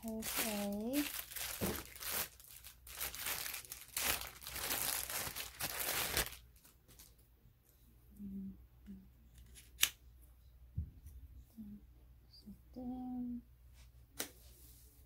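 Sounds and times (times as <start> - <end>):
plastic packaging crinkling: 0.0 - 7.2.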